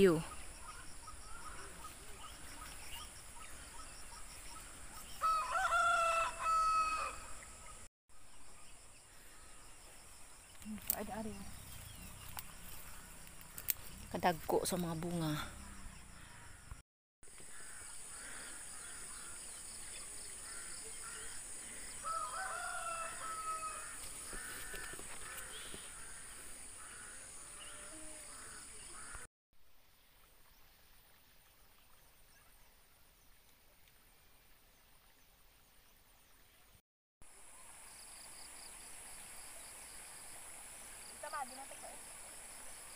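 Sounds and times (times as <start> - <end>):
faint outdoor background: 0.0 - 42.9
rooster crowing: 5.2 - 7.4, 22.0 - 24.0.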